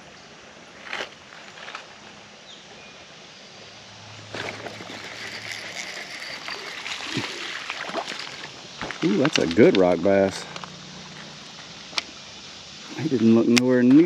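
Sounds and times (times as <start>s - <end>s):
creek water running: 3.0s - 14.0s
fishing reel ticking whirr: 4.5s - 7.6s.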